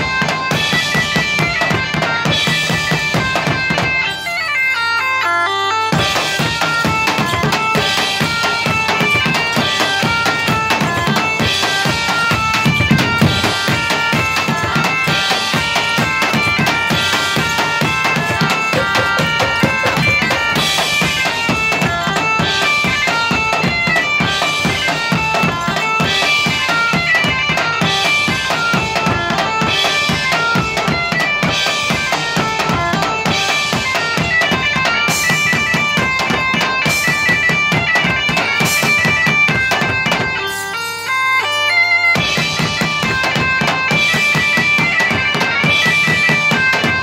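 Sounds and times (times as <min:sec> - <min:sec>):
bagpipes playing melody: 0:00.0 - 0:47.0
drum kit: 0:06.0 - 0:22.6
bass drum beat: 0:18.3 - 0:20.7.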